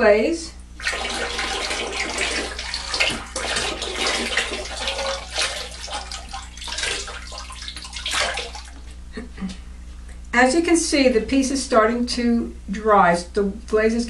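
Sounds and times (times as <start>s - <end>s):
liquid glaze pouring and splashing: 0.8s - 9.0s.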